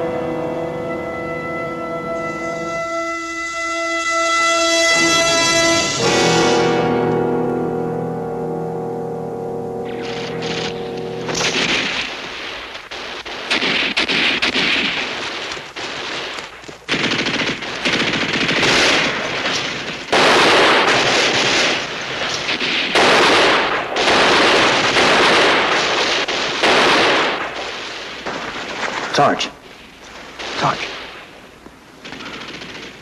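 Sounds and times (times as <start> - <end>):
machine-gun fire: 9.9 - 29.4, 32.0 - 33.0.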